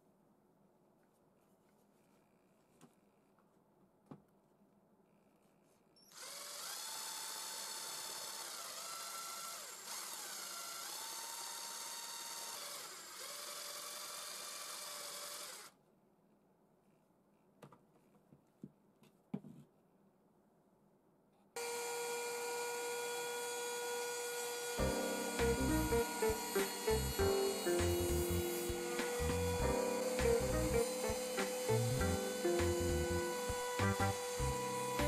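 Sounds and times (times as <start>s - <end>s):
electric drill sanding wood: 6.1s - 15.7s, 21.6s - 35.0s
router high whine: 6.1s - 15.7s, 21.6s - 35.0s.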